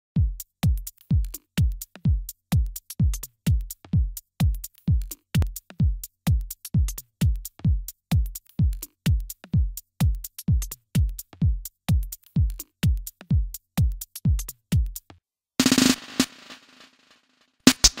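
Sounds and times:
kick drum thumps: 0.2 - 15.0
hi-hat ticks: 0.4 - 15.1, 17.7 - 18.0
electronic dance music: 15.6 - 17.0, 17.7 - 18.0.

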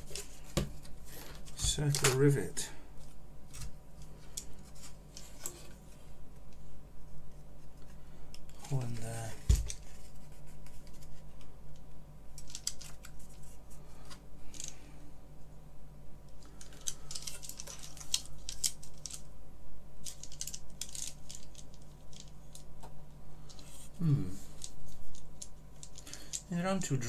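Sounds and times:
keyboard parts clicking and rustling: 0.0 - 2.5, 12.4 - 14.8, 16.3 - 19.3, 20.0 - 22.9, 24.5 - 26.5
low electrical hum: 0.0 - 27.0.

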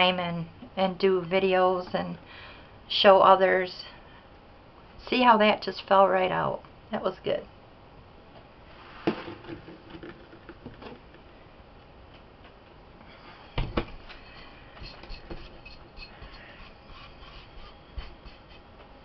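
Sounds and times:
plastic bowl scraping on counter: 8.8 - 11.1.

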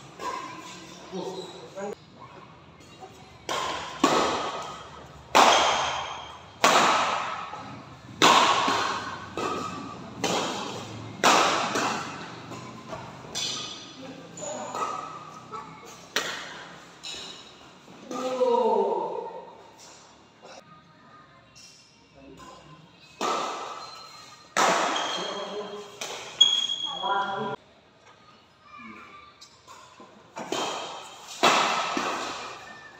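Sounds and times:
rackets hitting shuttlecock: 3.4 - 18.3, 23.2 - 26.8, 29.7 - 32.9.

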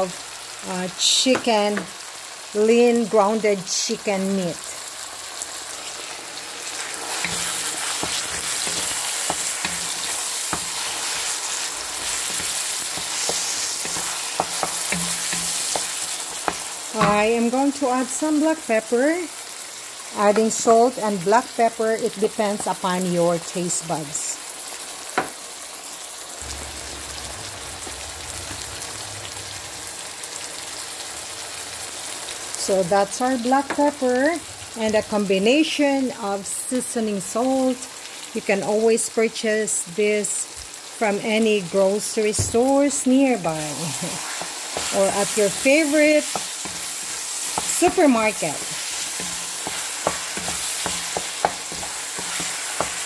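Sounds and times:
meat sizzling in hot oil: 0.0 - 53.0
spatula scraping and tapping pan: 6.8 - 17.3, 43.6 - 53.0
low hum: 26.4 - 30.0.

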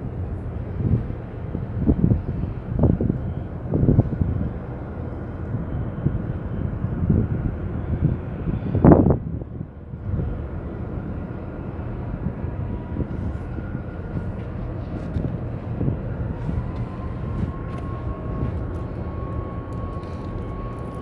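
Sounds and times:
low rumble of harbour ambience: 0.0 - 21.0.

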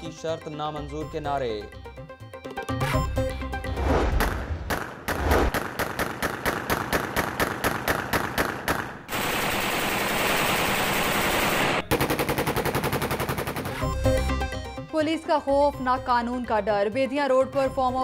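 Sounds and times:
steady rushing noise: 3.8 - 5.6
automatic gunfire: 4.7 - 13.9.

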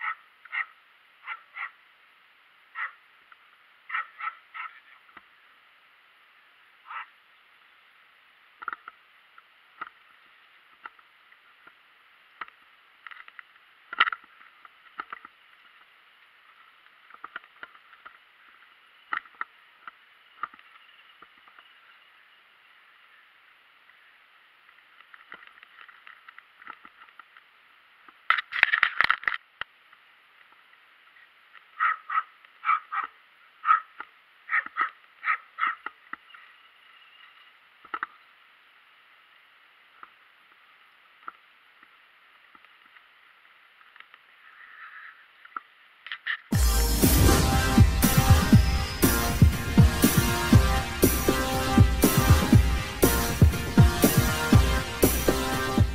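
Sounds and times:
small dog barking: 0.0 - 1.8, 2.8 - 3.0, 3.9 - 5.0, 6.9 - 7.1, 31.8 - 33.9, 34.5 - 35.8.

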